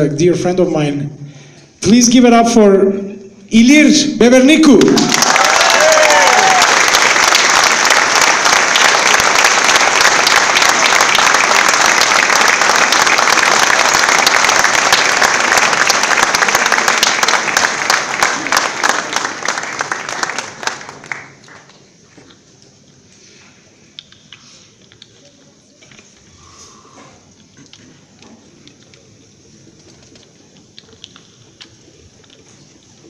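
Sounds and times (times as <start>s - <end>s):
audience applauding: 4.7s - 22.0s.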